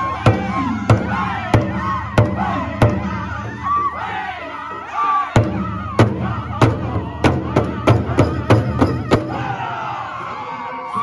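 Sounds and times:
large bass drum beats: 0.0 - 3.8, 5.4 - 9.6.

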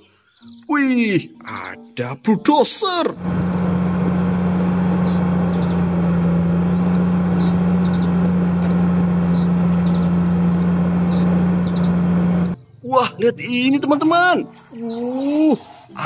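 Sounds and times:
small birds chirping: 0.0 - 16.0
bulldozer diesel engine droning: 3.2 - 12.6.

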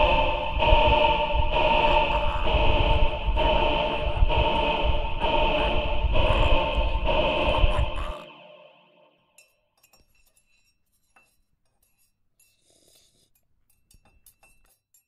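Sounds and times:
spoon clinking in a cup: 9.4 - 15.0.

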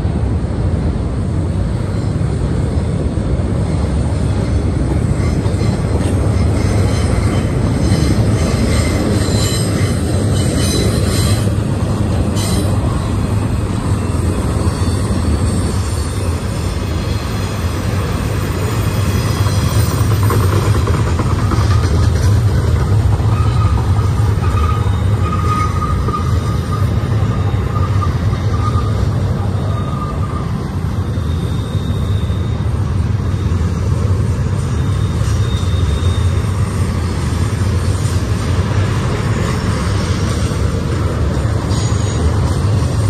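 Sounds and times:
steel wheels rumbling on rail: 0.0 - 43.0
wheel squeal: 4.4 - 11.6, 23.2 - 33.9, 34.6 - 36.9.

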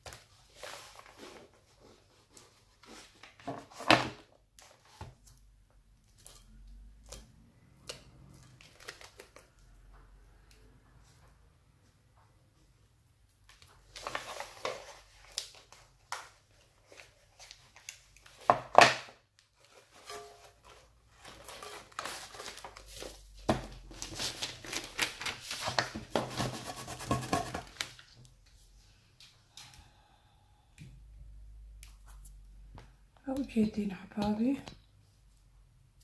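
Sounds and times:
foil wrapping paper crinkling: 19.5 - 28.2.

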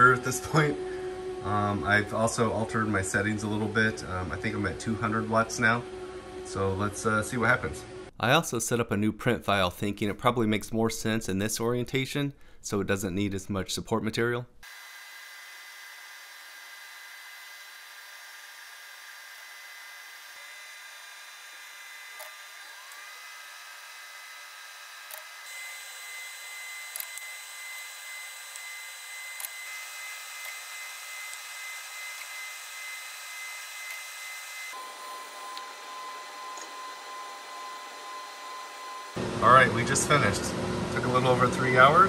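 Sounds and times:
machine whir with high tones: 0.0 - 8.1, 14.6 - 42.0
motor tone rising: 0.0 - 8.1, 16.5 - 42.0.

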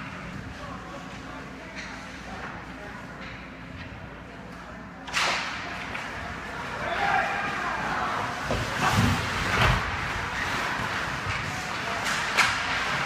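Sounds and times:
skates and sticks on ice: 5.8 - 13.0.

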